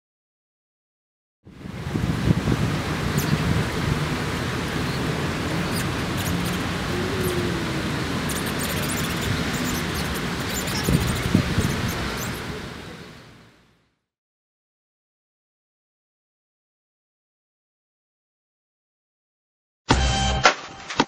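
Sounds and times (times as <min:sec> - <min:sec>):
distant traffic rumble: 0:01.5 - 0:13.6.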